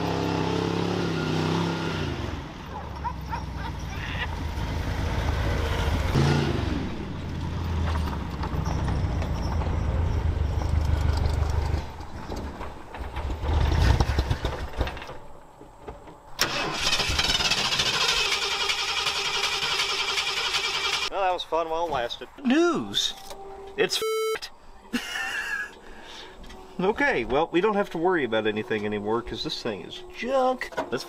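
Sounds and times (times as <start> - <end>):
truck engine revving hard: 0.0 - 9.1
tyres spinning on grass: 7.3 - 21.1.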